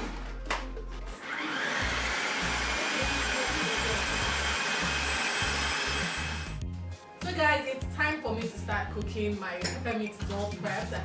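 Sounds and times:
food processor chopping: 1.2 - 6.6.

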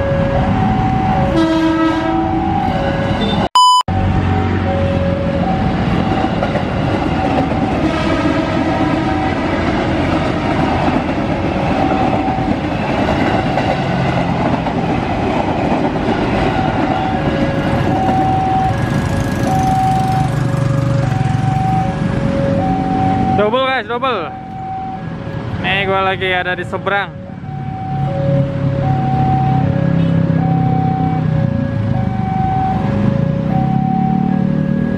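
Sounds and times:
two-pitch crossing tone: 2.1 - 5.8, 16.9 - 20.4, 21.0 - 23.6
train rumbling: 4.0 - 34.9
train wheels clickety-clack: 6.0 - 18.2.

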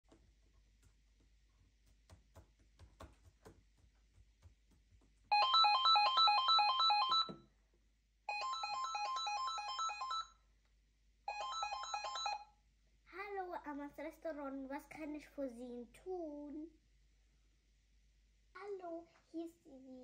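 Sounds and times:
cordless telephone ringing: 5.3 - 7.4, 8.3 - 10.4, 11.3 - 12.5.

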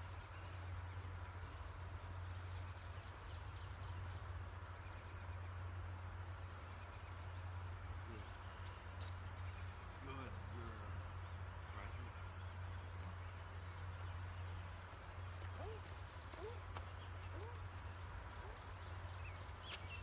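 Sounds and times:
low background hum: 0.0 - 20.0
dog whistle blast: 9.0 - 9.3.

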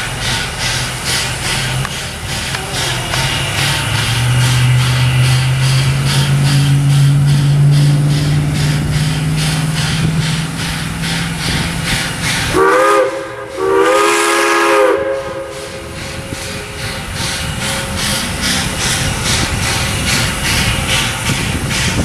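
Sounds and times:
steam locomotive exhaust chuffs: 0.0 - 22.0
chime steam whistle: 12.4 - 18.4.

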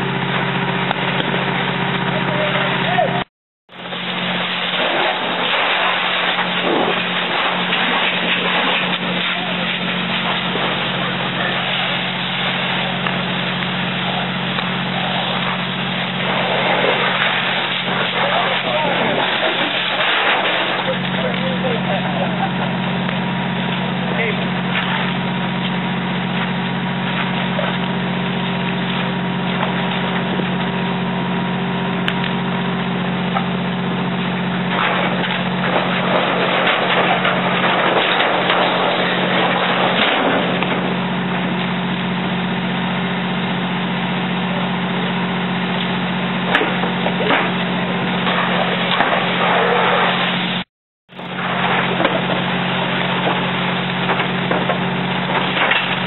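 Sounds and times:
fire engine pump drone: 0.0 - 56.0
hose streams: 3.7 - 30.8
sharp cracks: 3.8 - 30.8, 34.1 - 42.5, 45.8 - 56.0
fire hissing and crackling: 3.8 - 50.6, 51.2 - 56.0.

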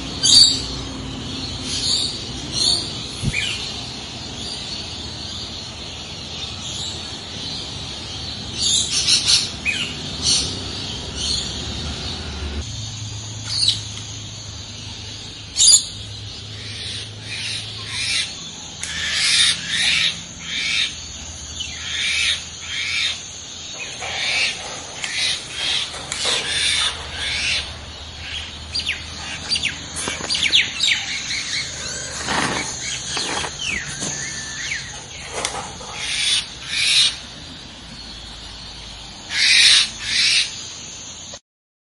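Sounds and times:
parrots squawking: 23.8 - 37.2.

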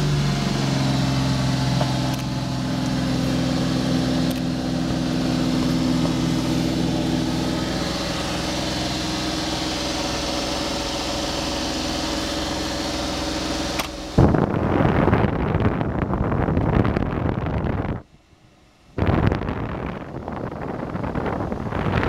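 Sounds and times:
engine idling: 0.0 - 22.0
heater blower air rushing: 0.0 - 22.0
switch click: 13.8 - 14.0.

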